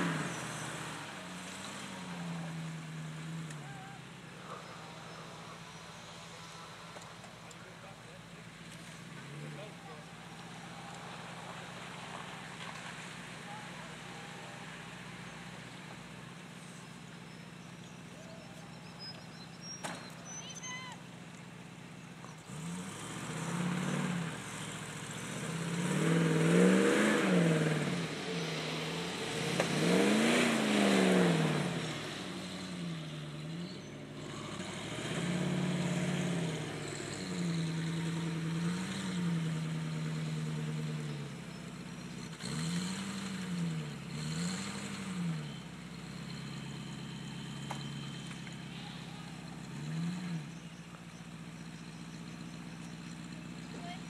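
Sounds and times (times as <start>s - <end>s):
engine revving: 0.0s - 13.1s, 22.4s - 50.8s.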